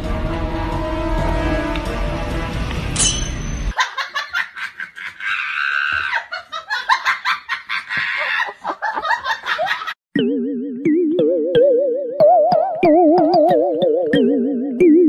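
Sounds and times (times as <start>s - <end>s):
person laughing hard: 3.8s - 10.0s.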